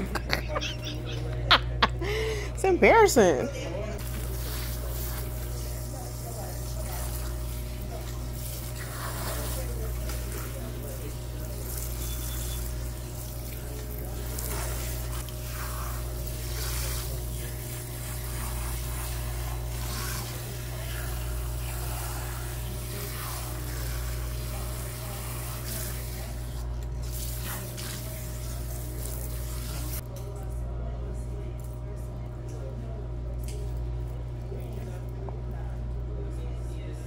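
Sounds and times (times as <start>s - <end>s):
steady low hum: 0.0s - 37.0s
water spraying and splashing: 4.0s - 30.0s.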